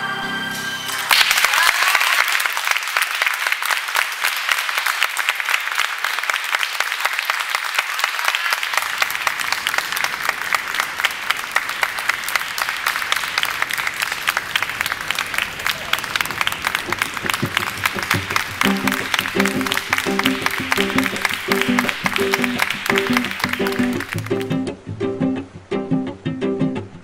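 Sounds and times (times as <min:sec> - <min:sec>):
audience applauding: 0:00.9 - 0:24.6.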